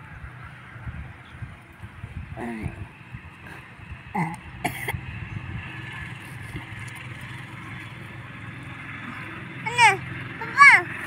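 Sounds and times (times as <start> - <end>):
engine humming: 0.0 - 11.0
brief cough-like burst: 4.6 - 5.0.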